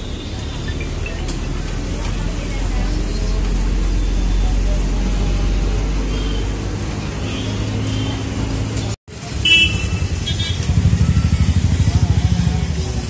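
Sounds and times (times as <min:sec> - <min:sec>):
bus engine running: 0:00.0 - 0:09.4
street traffic noise: 0:00.0 - 0:13.0.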